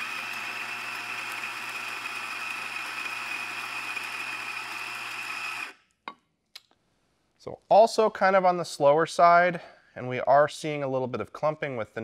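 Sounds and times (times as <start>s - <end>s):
coffee grinder whining: 0.0s - 5.8s.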